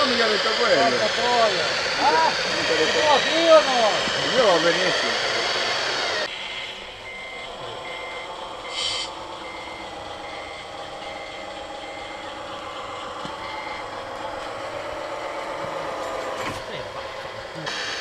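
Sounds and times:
steady motor hum: 0.0 - 18.0
reversing alarm beeping: 6.1 - 14.0.

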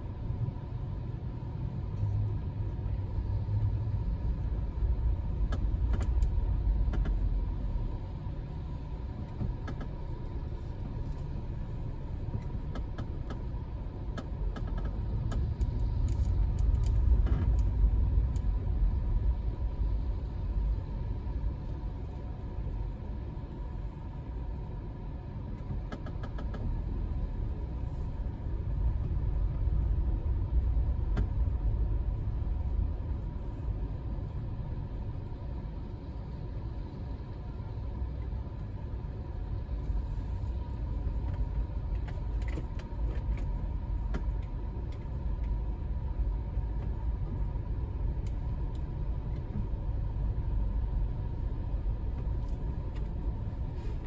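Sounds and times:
car engine and road noise: 0.0 - 54.0
light ticks: 5.4 - 7.2, 12.3 - 18.5, 48.2 - 49.7.

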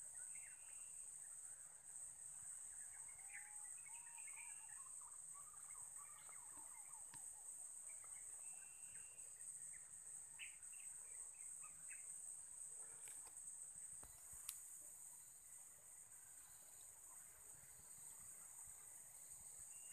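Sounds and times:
high-pitched insect drone: 0.0 - 19.9
faint click: 13.0 - 13.4, 14.0 - 14.6.

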